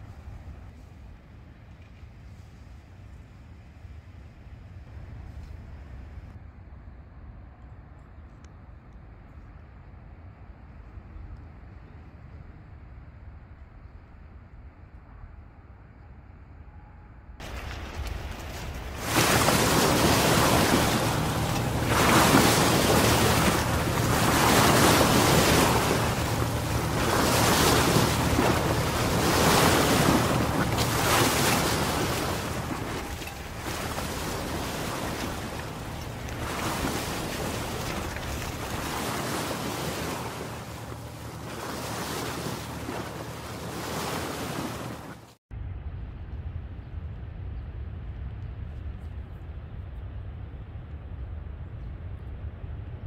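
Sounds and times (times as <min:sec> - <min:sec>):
sea surf breaking: 0:17.4 - 0:45.4
wind rumbling on microphone: 0:17.4 - 0:53.0.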